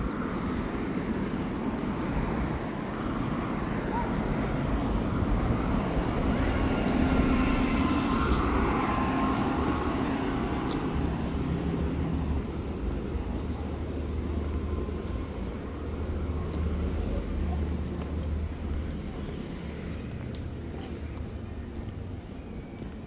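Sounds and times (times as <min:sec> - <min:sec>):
rumble of motor traffic: 0:00.0 - 0:23.0
vehicle passing by: 0:03.2 - 0:14.6.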